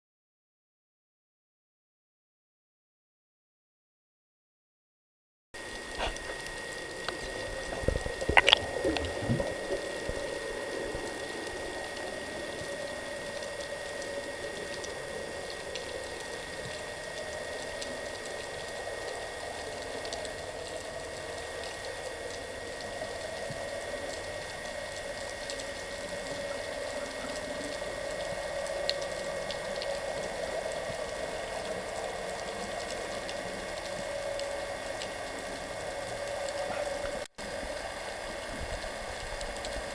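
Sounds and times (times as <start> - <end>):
underwater hiss and crackle: 5.6 - 39.9.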